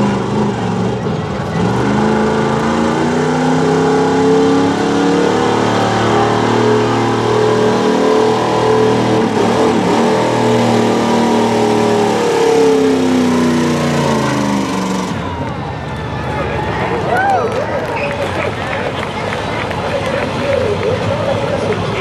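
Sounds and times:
truck engine revving under load: 0:00.0 - 0:16.4.

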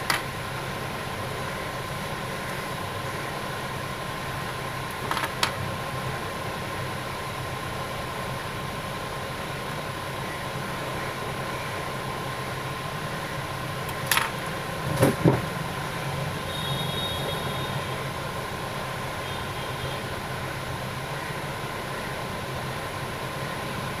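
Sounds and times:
thin constant whine: 0:00.0 - 0:24.0
clicks and taps on phone parts: 0:04.9 - 0:05.6.

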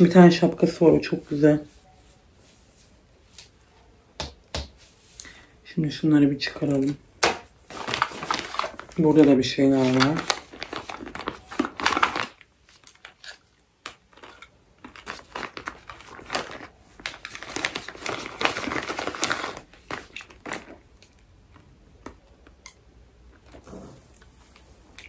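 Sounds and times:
plastic packaging crinkling: 0:06.4 - 0:22.6.

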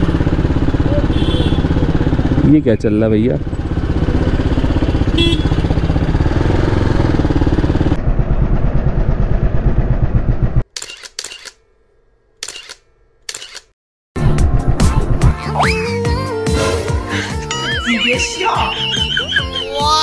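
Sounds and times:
motorcycle engine running at low revs: 0:00.0 - 0:10.6, 0:14.2 - 0:15.3.

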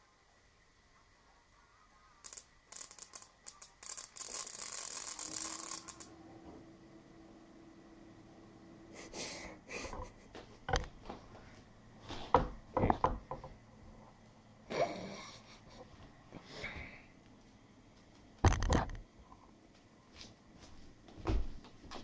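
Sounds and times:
low hum: 0:05.1 - 0:19.5.

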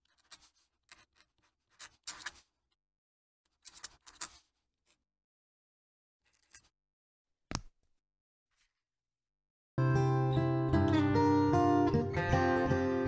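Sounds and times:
pen nib scratching paper: 0:00.0 - 0:02.5, 0:03.5 - 0:04.5.

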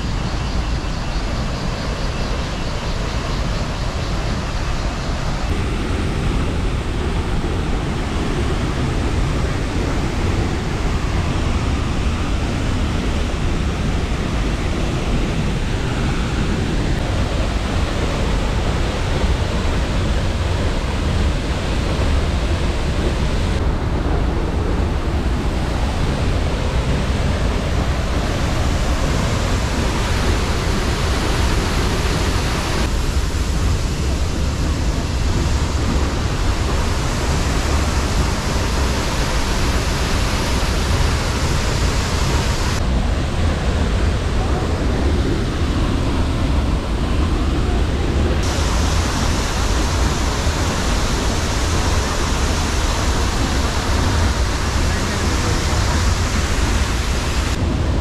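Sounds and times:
waterfall rushing onto rocks: 0:25.5 - 0:42.9, 0:48.3 - 0:57.8.

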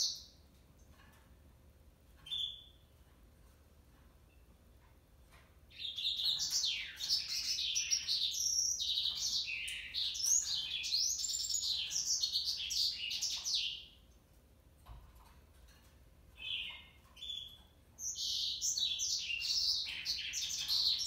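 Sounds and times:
canary singing: 0:00.0 - 0:00.4, 0:02.2 - 0:03.0, 0:05.6 - 0:14.1, 0:16.3 - 0:21.0.

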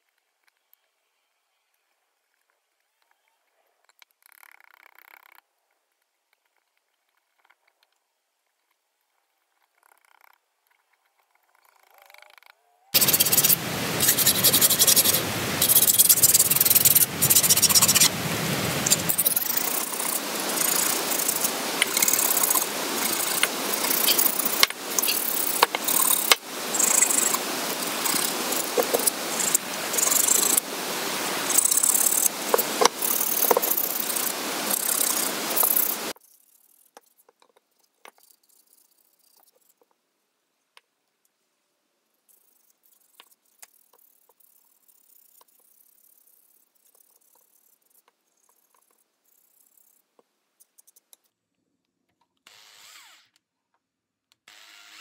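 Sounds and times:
sandpaper scratching wood: 0:13.0 - 0:18.1, 0:18.8 - 0:30.7.

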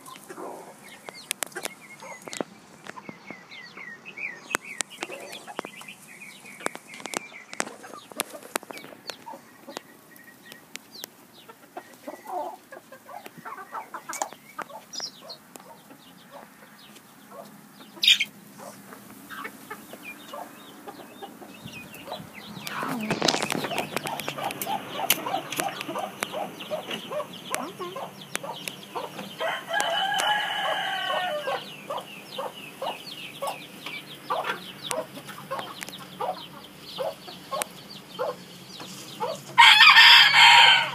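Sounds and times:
chickens pecking taps: 0:00.0 - 0:03.9, 0:04.5 - 0:39.7
chickens clucking: 0:00.0 - 0:40.9
rustling: 0:22.7 - 0:25.6.

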